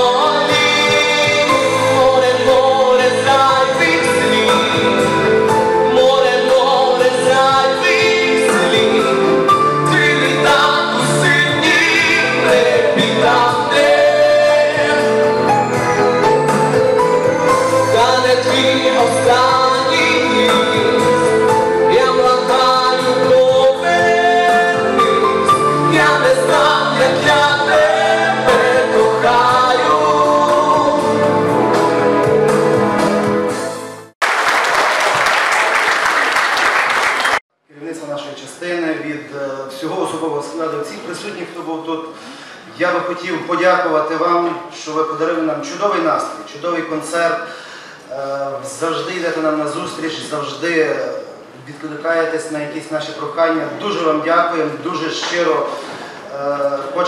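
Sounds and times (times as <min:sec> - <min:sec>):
man singing into microphone: 0:00.0 - 0:15.6, 0:17.8 - 0:31.5
instrumental accompaniment: 0:00.0 - 0:34.2.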